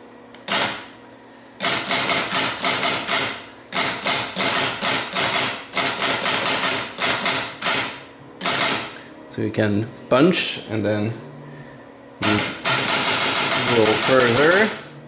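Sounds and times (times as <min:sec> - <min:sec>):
tape punch clacking: 0:00.4 - 0:00.9, 0:01.6 - 0:09.0, 0:12.2 - 0:14.8.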